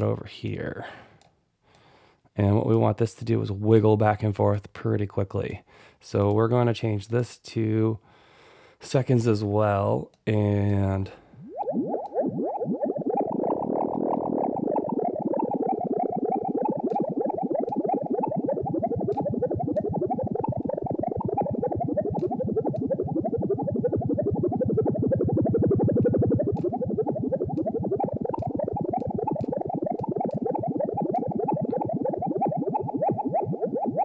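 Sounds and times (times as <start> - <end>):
bubbly synthesizer blips: 10.5 - 34.0.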